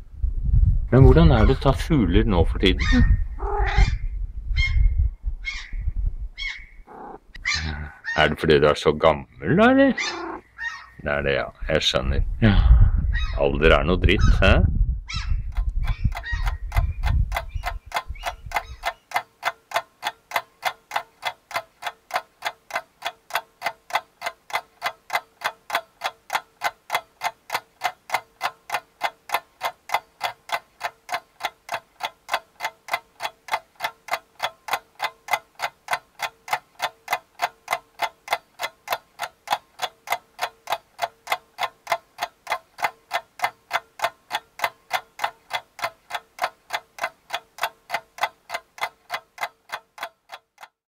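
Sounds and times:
clock ticking: 0:15.5 - 0:50.8.

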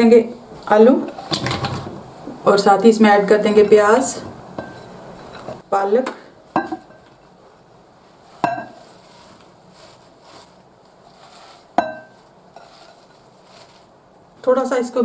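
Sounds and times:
glass bowls clinking: 0:04.6 - 0:05.6, 0:08.4 - 0:09.0, 0:11.8 - 0:13.0
rustle of leaves in bowl: 0:08.0 - 0:14.8.

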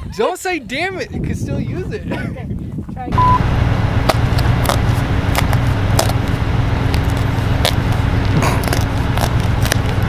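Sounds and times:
low hum: 0:03.1 - 0:10.0.

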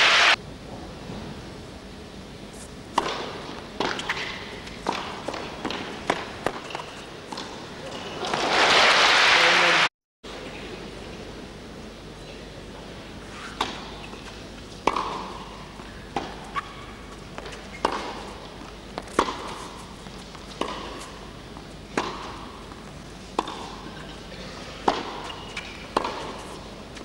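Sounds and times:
tennis ball struck by rackets: 0:02.9 - 0:08.6, 0:13.5 - 0:21.3, 0:21.9 - 0:22.7, 0:23.3 - 0:24.0, 0:24.8 - 0:26.7.

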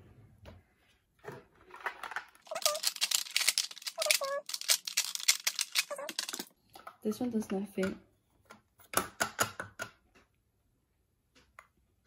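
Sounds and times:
plastic compacts clicking: 0:02.4 - 0:06.5.

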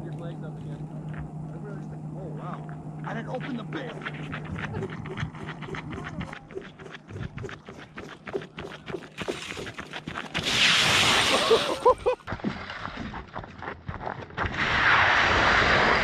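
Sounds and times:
boots running on ice: 0:03.5 - 0:10.8, 0:11.4 - 0:14.5.

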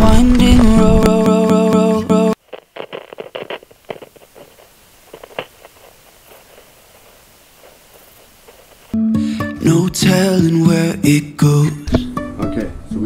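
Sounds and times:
faint room hiss: 0:01.1 - 0:13.0
gear clicking and rustling: 0:02.4 - 0:09.0.

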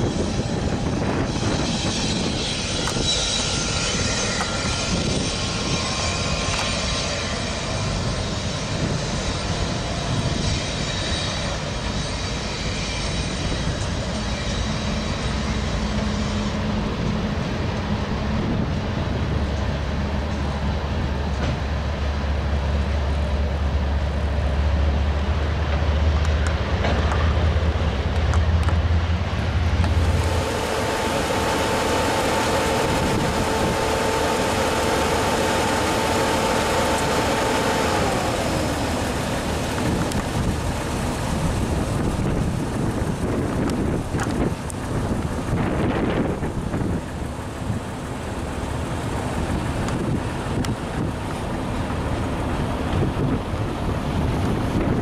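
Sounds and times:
deep engine drone: 0:00.0 - 0:55.0
train wheels rumbling and rattling: 0:00.0 - 0:55.0
steady hum: 0:29.4 - 0:53.8.

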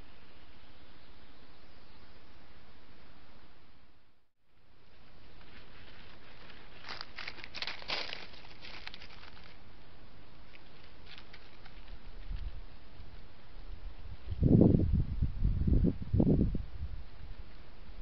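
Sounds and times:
dry leaves and twigs crackling: 0:04.8 - 0:13.4.

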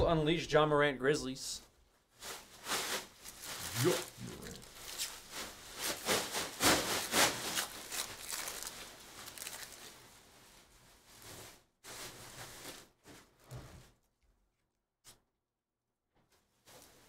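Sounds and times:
foil wrapper tearing and crinkling: 0:02.3 - 0:10.1
cards rustling: 0:07.0 - 0:09.8.

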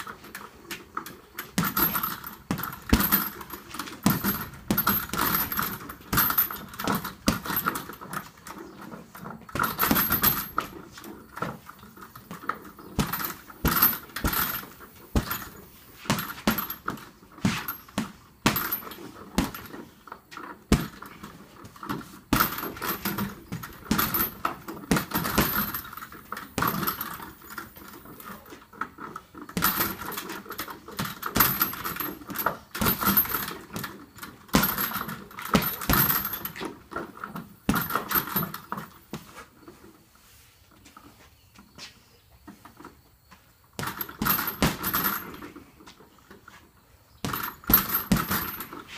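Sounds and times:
metal hardware jingling: 0:00.0 - 0:39.1, 0:43.8 - 0:46.3, 0:47.1 - 0:48.9
punches on heavy bag: 0:01.5 - 0:07.8, 0:13.0 - 0:19.7, 0:20.7 - 0:21.2, 0:22.3 - 0:25.9, 0:34.5 - 0:36.6, 0:43.8 - 0:45.3, 0:47.2 - 0:48.9.

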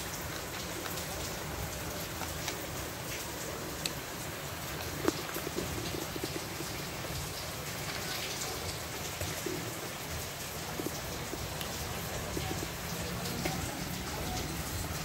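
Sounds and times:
cats crunching dry kibble: 0:04.7 - 0:09.8.

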